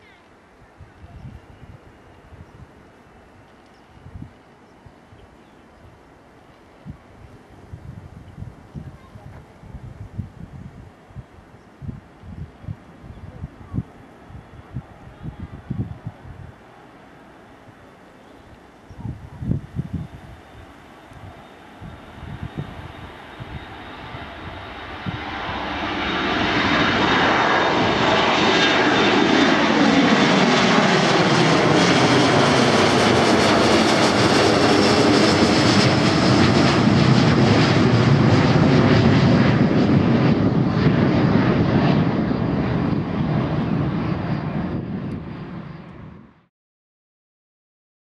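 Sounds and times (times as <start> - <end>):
jet engines at take-off: 19.5 - 46.5.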